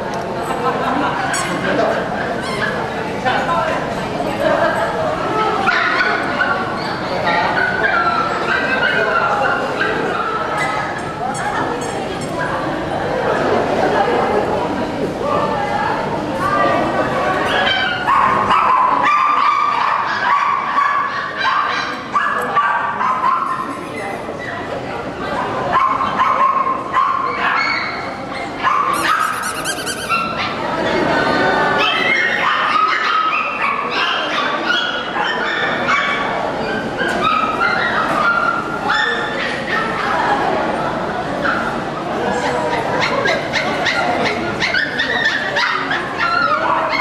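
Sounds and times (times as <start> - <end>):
small dogs yapping and barking: 25.8 - 31.0, 42.7 - 47.0
dog whining and yipping: 28.9 - 30.4.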